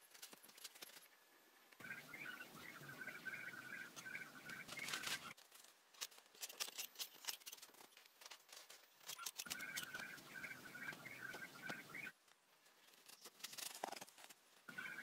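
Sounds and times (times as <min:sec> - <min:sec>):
small bird chirping: 0:01.8 - 0:05.4, 0:09.1 - 0:12.1, 0:14.7 - 0:15.0.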